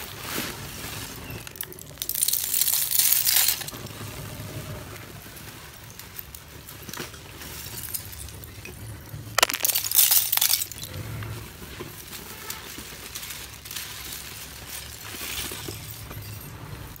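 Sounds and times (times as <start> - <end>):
clay shards clattering: 9.4 - 10.9.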